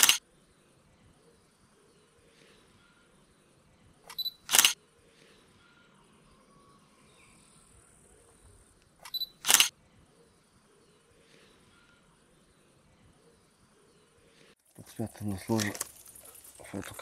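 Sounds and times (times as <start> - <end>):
camera focus beep: 0.0 - 0.2, 4.1 - 4.8, 9.0 - 9.7
camera shutter click: 0.0 - 0.2, 4.1 - 4.8, 9.0 - 9.7.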